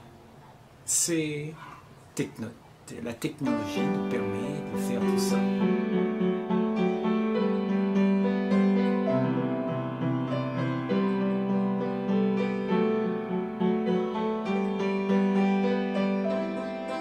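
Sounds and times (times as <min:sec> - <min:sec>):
slow piano music: 0:03.4 - 0:17.0.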